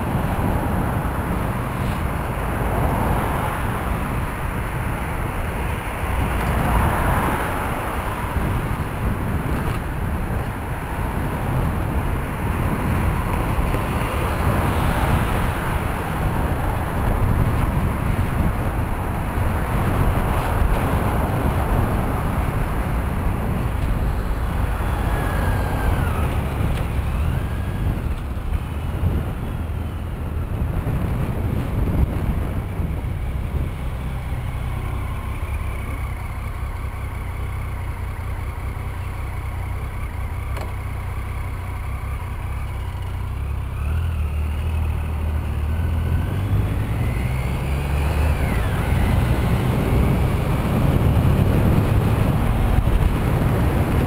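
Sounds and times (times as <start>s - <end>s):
cars passing close: 0.0s - 54.0s
low engine hum: 0.0s - 54.0s
wind rumble on microphone: 0.0s - 54.0s.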